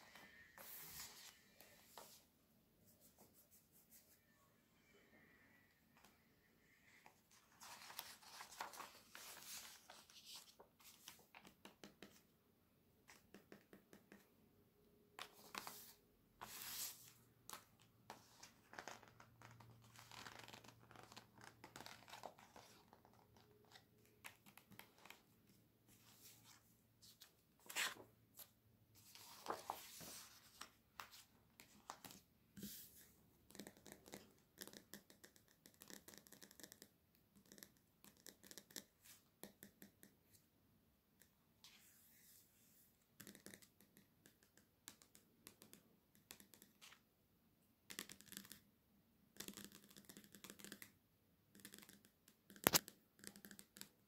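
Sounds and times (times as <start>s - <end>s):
paper pages rustling: 7.3s - 11.5s, 25.9s - 32.9s.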